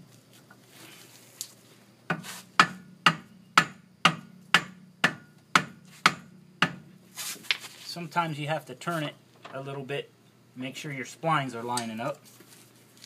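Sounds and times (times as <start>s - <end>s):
rubber mallet striking wheel hub: 2.1s - 6.9s.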